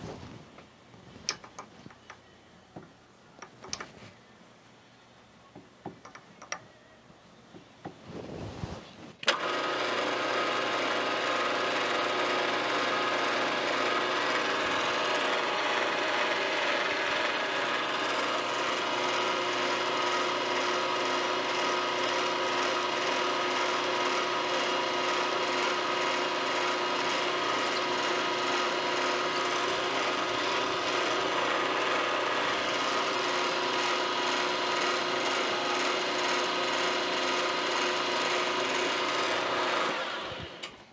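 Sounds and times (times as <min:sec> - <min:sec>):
milling machine motor humming: 0:09.2 - 0:40.8.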